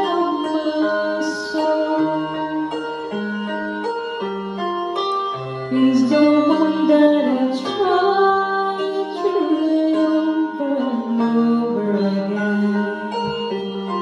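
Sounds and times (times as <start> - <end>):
woman singing a slow ballad: 0.0 - 2.6, 5.7 - 13.1
sustained keyboard accompaniment: 0.0 - 14.0.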